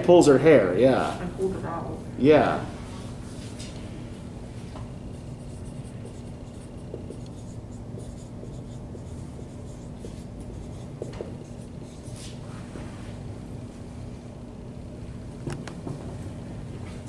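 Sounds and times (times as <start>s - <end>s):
low room hum: 0.0s - 17.0s
marker squeaking on whiteboard: 5.1s - 12.2s.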